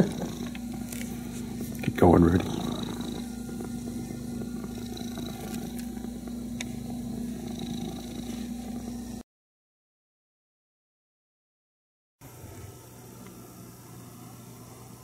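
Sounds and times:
cat purring: 0:00.0 - 0:09.2.

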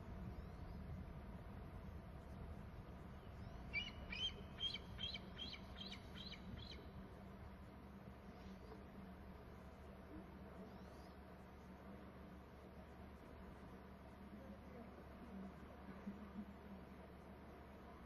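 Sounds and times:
faint low hum: 0:00.0 - 0:18.0
eaglet chirping calls: 0:03.7 - 0:06.8.

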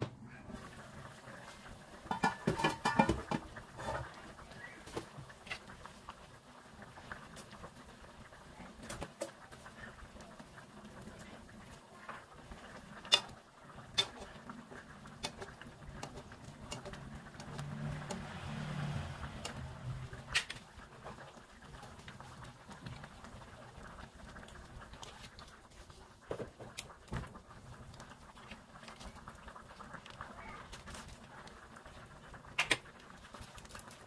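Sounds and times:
soup bubbling in a pan: 0:00.1 - 0:34.0
ladle stirring broth: 0:00.6 - 0:34.0
metal ladle clinking on pan: 0:02.1 - 0:03.4, 0:13.1 - 0:14.3.

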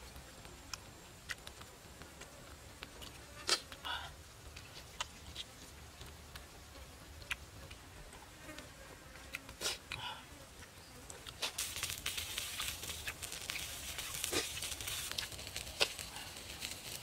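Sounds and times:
insects buzzing: 0:07.8 - 0:17.0
sharp clicks and pops: 0:11.1 - 0:17.0.

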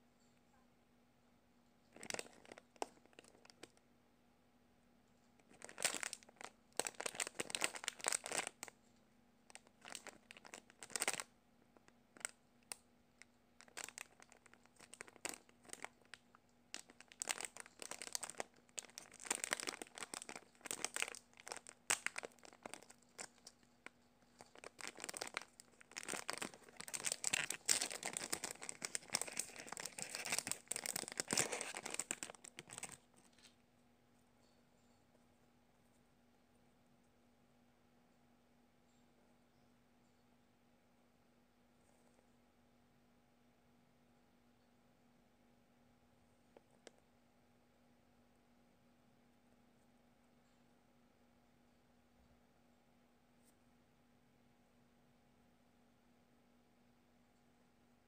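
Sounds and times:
faint steady hum: 0:00.0 - 0:58.0
plastic bags crinkling: 0:01.9 - 0:03.8, 0:05.4 - 0:08.7, 0:09.5 - 0:11.3, 0:13.6 - 0:33.5.

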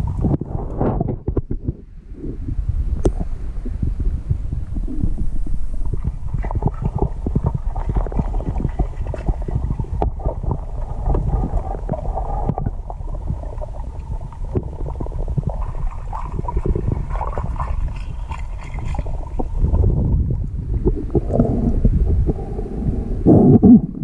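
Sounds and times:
underwater water rumble: 0:00.0 - 0:24.0
small crackles and knocks: 0:00.2 - 0:01.8.

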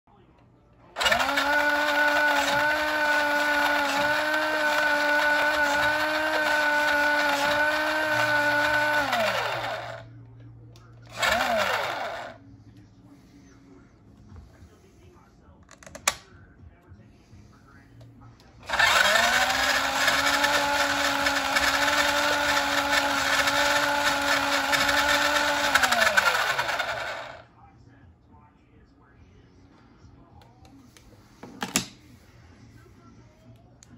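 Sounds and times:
toy truck electric motor whine: 0:01.0 - 0:10.0, 0:11.1 - 0:12.4, 0:18.6 - 0:27.4.

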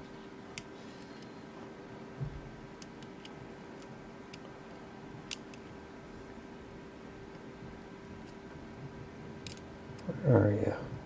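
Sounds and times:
lock pick clicking: 0:09.4 - 0:09.6.

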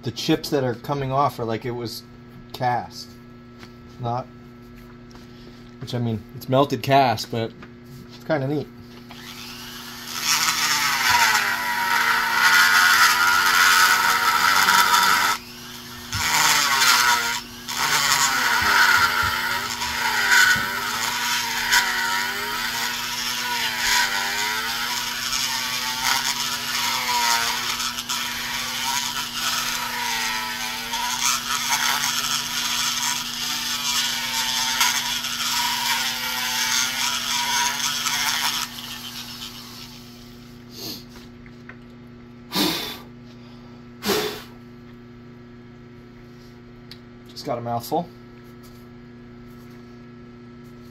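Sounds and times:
die grinder cutting metal: 0:09.1 - 0:40.2.

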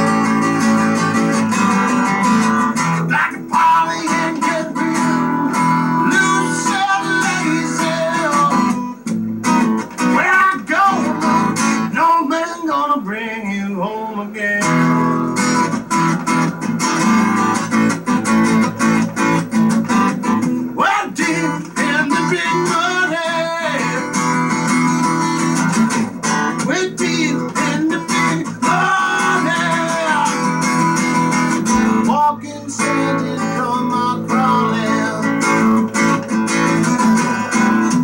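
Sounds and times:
strummed acoustic guitar blues: 0:00.0 - 0:38.0
man singing: 0:02.8 - 0:09.1, 0:10.0 - 0:15.3, 0:20.8 - 0:24.6, 0:26.4 - 0:30.7, 0:31.5 - 0:38.0.

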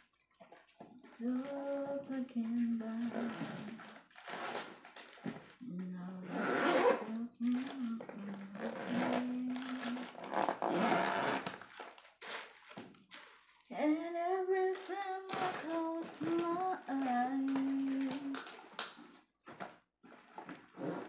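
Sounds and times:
plastic wrapping rustling: 0:00.0 - 0:20.8
woman humming a tune: 0:05.6 - 0:10.2, 0:14.9 - 0:18.4.

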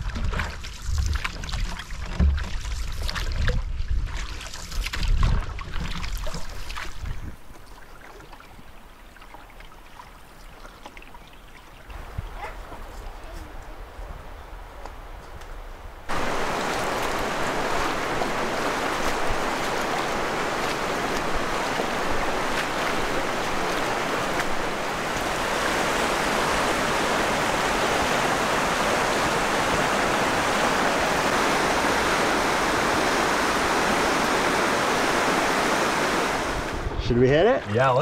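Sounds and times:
river rapids rushing: 0:16.1 - 0:36.9.

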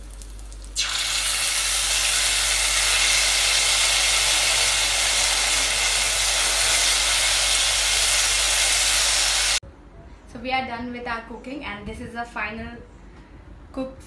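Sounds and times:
sauce sizzling in hot oil: 0:00.2 - 0:09.6.

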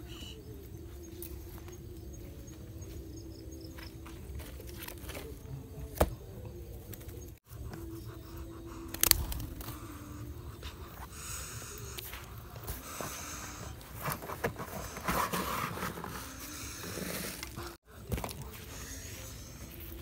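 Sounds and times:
hands rustling on dirt: 0:06.7 - 0:20.0.

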